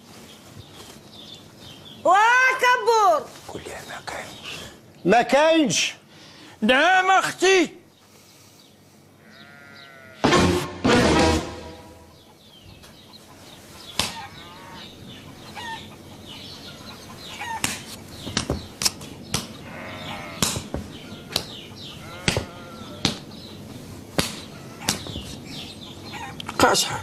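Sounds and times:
farm animal calls: 9.0 - 10.4, 12.1 - 18.2, 19.5 - 27.0.

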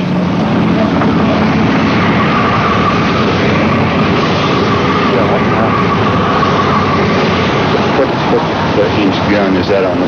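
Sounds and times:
boat engines running: 0.0 - 10.0
constant rushing noise: 0.0 - 10.0
thin steady whine: 0.0 - 10.0.

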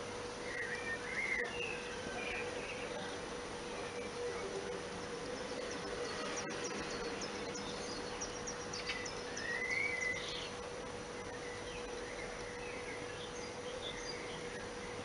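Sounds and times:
low steady hum: 0.0 - 15.0
steady hiss: 0.0 - 15.0.

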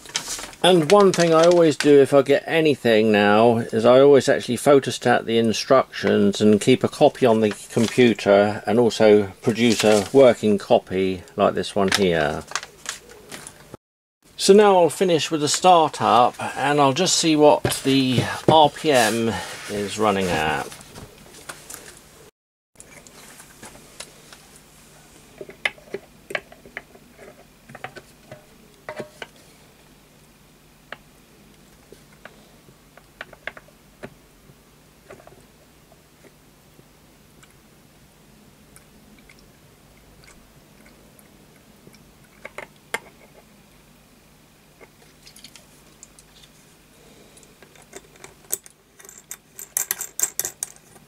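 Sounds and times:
metal parts clicking and clinking: 47.7 - 51.0.

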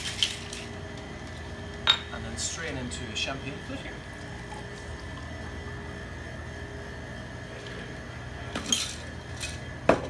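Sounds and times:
low steady hum: 0.0 - 10.0
liquid trickling: 4.1 - 5.8.

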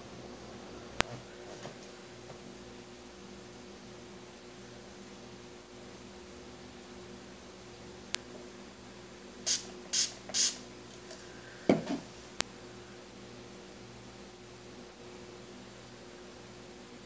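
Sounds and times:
spray bottle hissing: 9.5 - 10.6.

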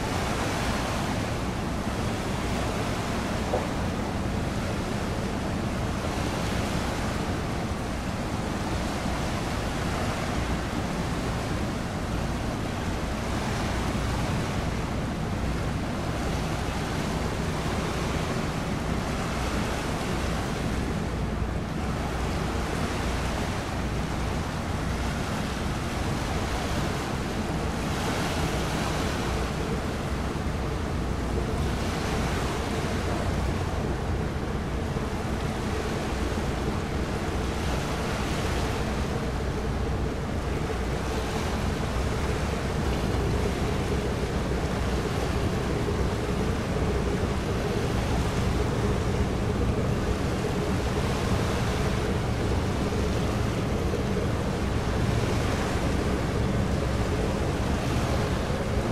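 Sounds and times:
low steady hum: 0.0 - 58.9
water washing against shore: 0.0 - 58.9
wind on microphone: 0.0 - 58.9.

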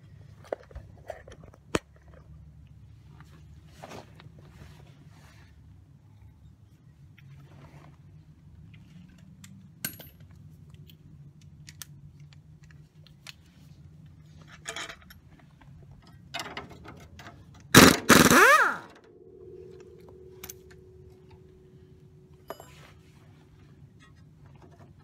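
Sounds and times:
tools clicking and clanking: 14.4 - 23.3
impact wrench bursts: 17.7 - 19.1.

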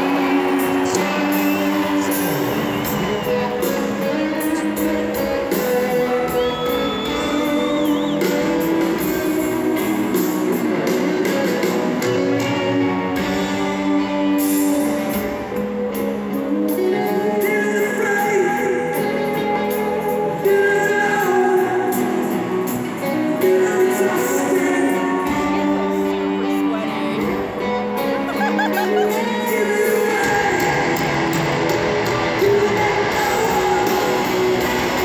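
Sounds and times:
man singing lead vocal: 0.0 - 15.5, 16.1 - 35.0
drums: 0.0 - 35.0
electric guitars: 0.0 - 35.0.

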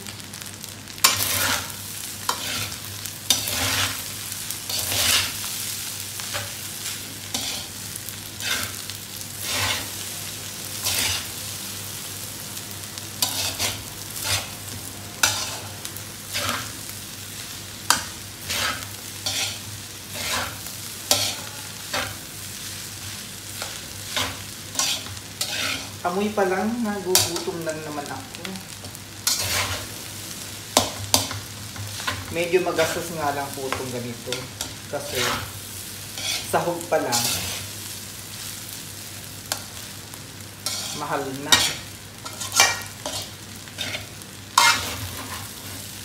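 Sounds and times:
rice sizzling: 0.0 - 46.0
spatula scraping metal wok: 1.0 - 4.1, 4.7 - 5.4, 6.2 - 7.8, 8.4 - 8.8, 9.4 - 10.0, 10.8 - 11.3, 13.2 - 14.6, 15.2 - 15.7, 16.3 - 16.8, 17.9 - 22.3, 23.6 - 26.0, 29.2 - 30.0, 30.8 - 37.8, 40.6 - 45.8.

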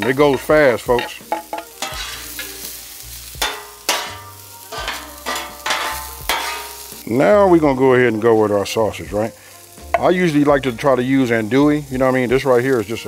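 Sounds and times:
metal spatula scraping griddle: 0.0 - 7.0
vegetables sizzling on griddle: 0.0 - 13.0.

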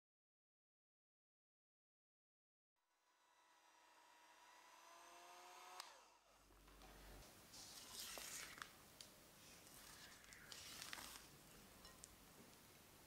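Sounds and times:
electric hand mixer whining: 2.8 - 6.3.

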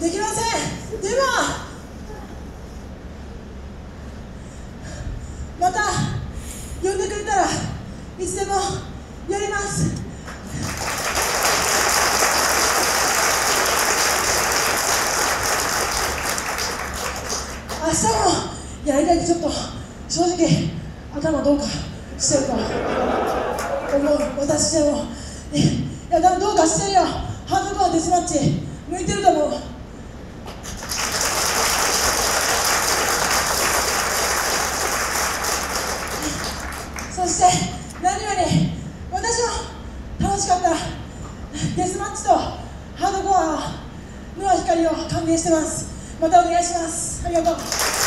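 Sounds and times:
audience applauding: 10.6 - 17.8, 23.3 - 24.4, 30.5 - 37.2, 47.6 - 48.0.

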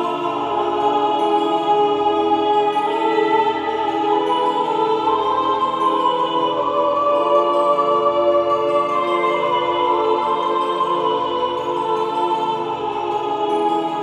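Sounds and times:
slow sustained chords: 0.0 - 14.0.

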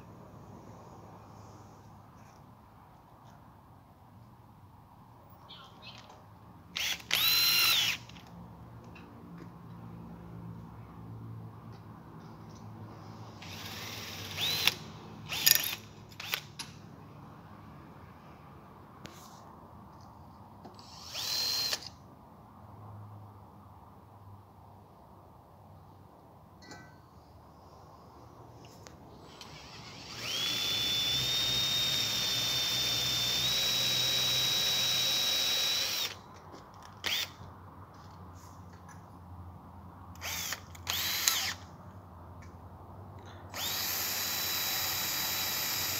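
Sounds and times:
cordless drill boring into metal: 6.8 - 8.1, 13.4 - 16.4, 20.8 - 21.9, 29.4 - 36.2, 37.0 - 37.3, 40.2 - 41.6, 43.5 - 45.9.

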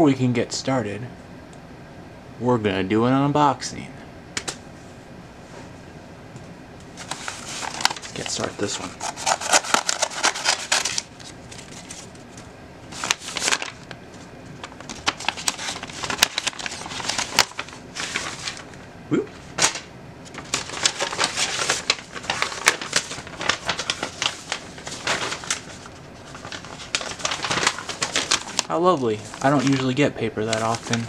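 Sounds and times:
paper crinkling and rustling: 6.9 - 18.8, 19.6 - 31.0.

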